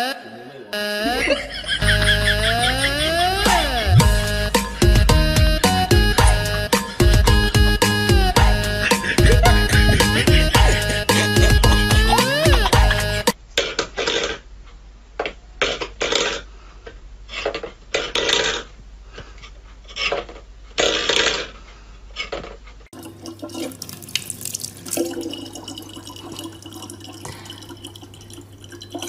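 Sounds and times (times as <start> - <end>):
tap water pouring into plastic bottle: 23.0 - 29.0.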